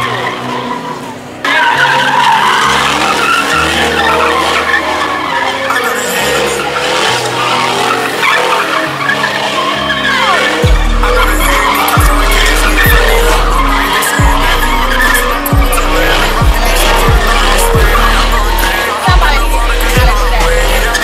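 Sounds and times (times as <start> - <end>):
tyres squealing and skidding: 0.0 - 21.0
music with stepping bass line: 10.6 - 21.0.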